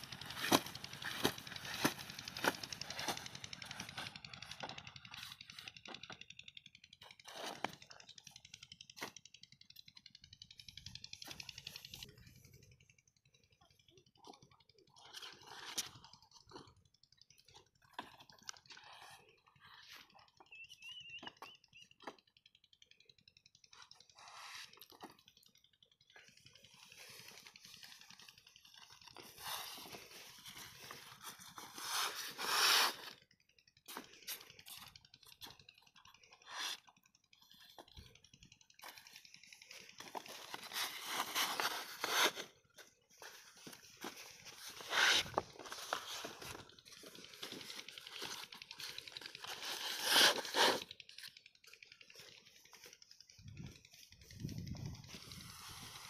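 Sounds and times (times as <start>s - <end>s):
plastic pipe crinkling: 0.0s - 5.6s, 33.8s - 51.4s.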